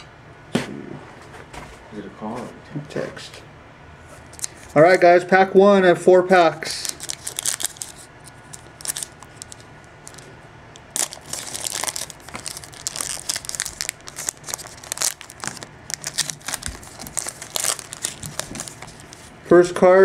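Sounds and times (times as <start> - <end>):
foil wrapper tearing and crinkling: 6.7 - 19.3.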